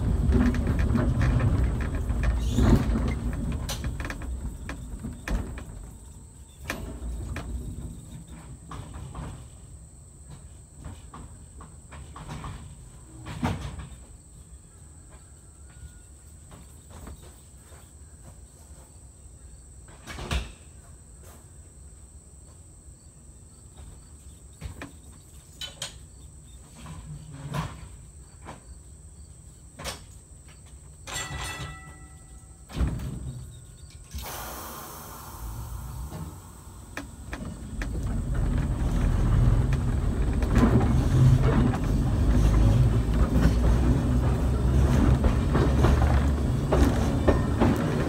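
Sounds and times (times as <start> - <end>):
high-pitched insect drone: 34.1 - 37.1
hiss: 34.1 - 37.1
scattered knocks and clicks: 36.0 - 48.0.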